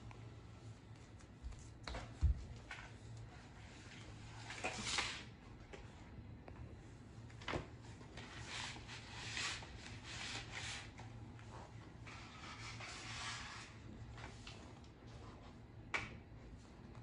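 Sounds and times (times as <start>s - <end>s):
boxes scraping and rustling: 3.7s - 5.3s, 8.1s - 15.2s.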